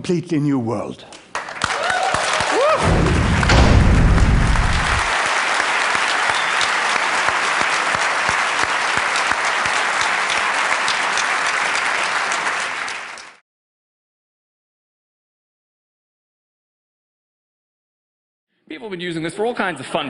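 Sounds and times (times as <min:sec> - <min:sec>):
audience applauding: 0:01.3 - 0:13.4.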